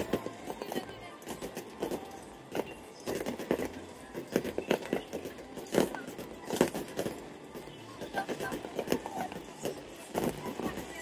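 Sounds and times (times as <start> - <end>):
fireworks bursting: 1.6 - 7.3.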